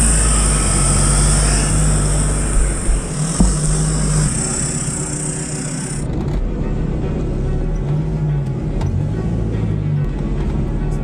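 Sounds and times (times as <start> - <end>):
off-road vehicle engine at low revs: 0.0 - 11.0
sharp knocks: 1.7 - 5.5.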